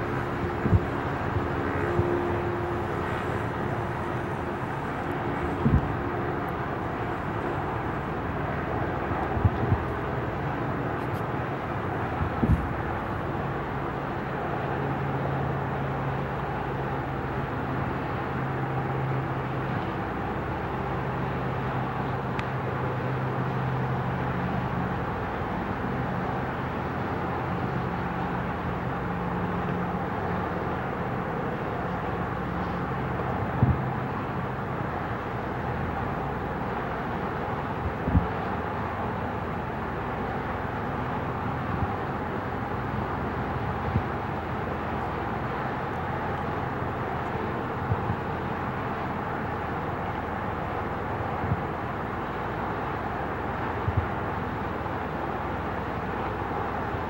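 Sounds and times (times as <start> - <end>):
low drone: 0.0 - 21.2
distant traffic hum: 0.0 - 57.0.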